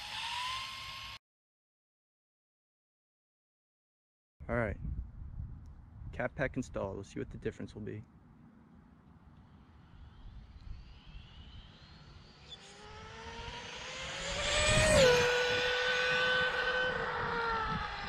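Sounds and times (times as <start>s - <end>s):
electric motor whining: 9.5s - 18.0s.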